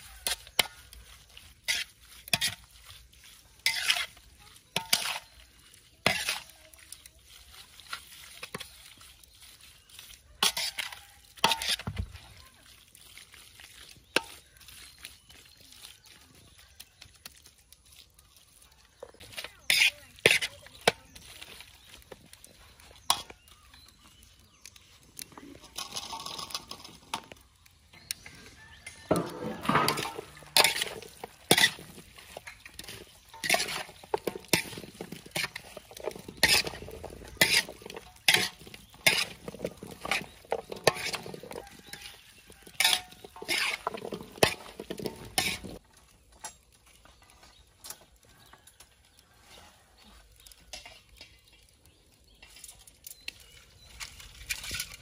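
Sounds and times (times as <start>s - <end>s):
metal spoon scraping metal basin: 0.0s - 11.9s, 19.2s - 21.4s, 25.3s - 27.4s, 28.0s - 45.8s.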